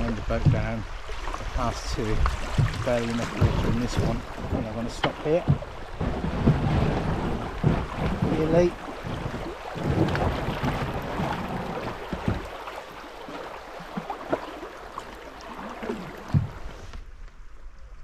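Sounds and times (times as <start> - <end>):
river rushing over stones: 0.0 - 16.9
scattered knocks: 2.2 - 11.0.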